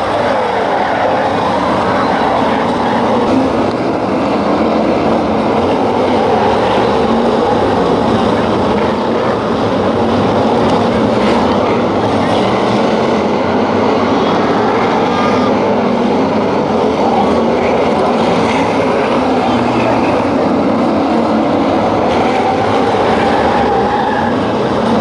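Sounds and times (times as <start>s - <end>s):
stock car engines racing: 0.0s - 25.0s.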